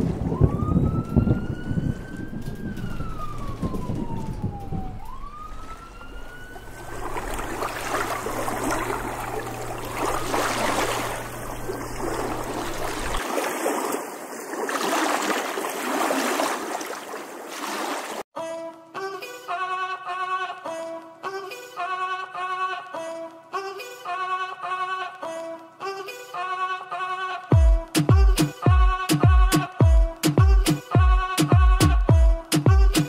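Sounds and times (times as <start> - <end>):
low hum: 0.0 - 13.2.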